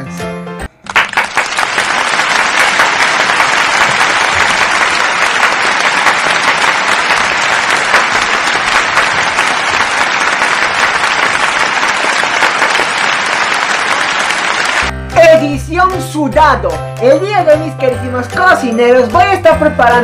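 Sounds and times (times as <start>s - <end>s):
crowd applauding: 0.8s - 14.9s.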